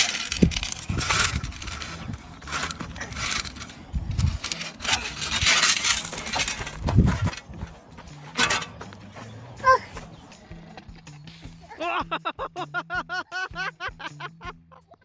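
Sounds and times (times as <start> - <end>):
metal spade scraping gravel: 0.0 - 9.1.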